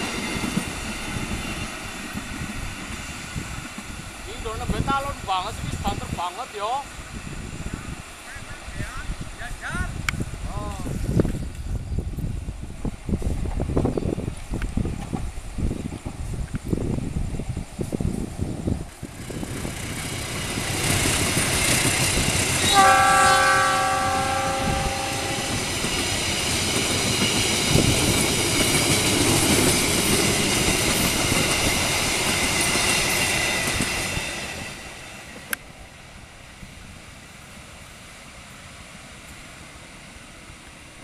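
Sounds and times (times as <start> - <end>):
train wheels on rail: 0.0 - 41.0
train horn: 22.6 - 25.6.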